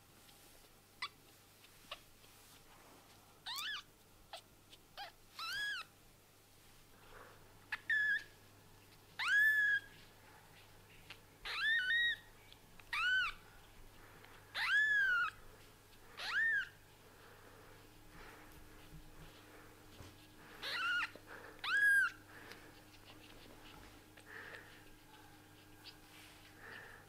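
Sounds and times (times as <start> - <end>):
kitten mewing: 20.6 - 22.2.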